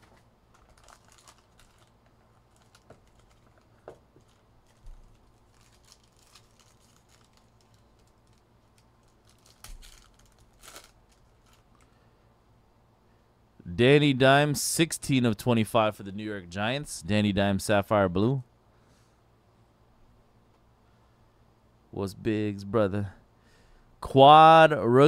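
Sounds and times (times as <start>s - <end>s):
foil wrappers crinkling: 0.0s - 12.0s.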